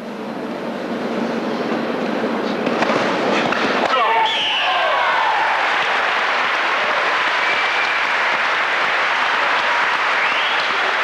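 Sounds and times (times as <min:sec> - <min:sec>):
crowd applauding: 0:04.6 - 0:11.0.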